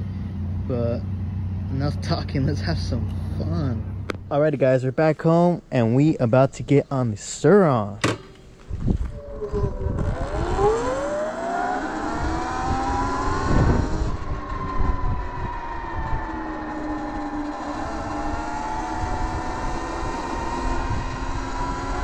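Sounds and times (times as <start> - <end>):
wind on microphone: 8.7 - 22.0
electric motorbike motor whine: 8.8 - 22.0.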